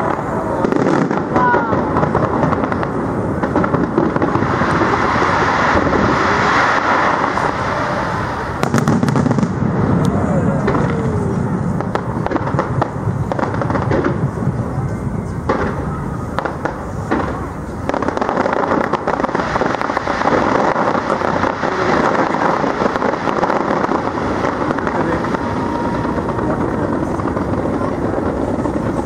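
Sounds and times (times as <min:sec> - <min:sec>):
fireworks bangs: 0:00.0 - 0:29.0
fireworks crackling: 0:00.0 - 0:29.0.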